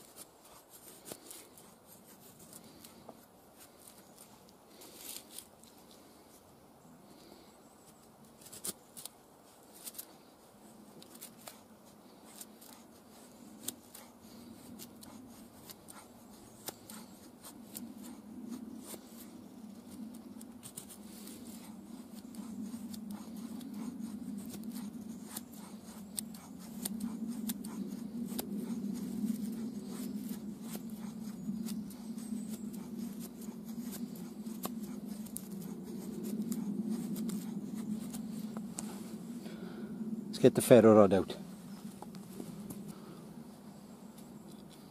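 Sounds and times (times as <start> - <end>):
low background rumble: 0.0 - 44.9
knife scraping wooden stick: 10.9 - 38.9.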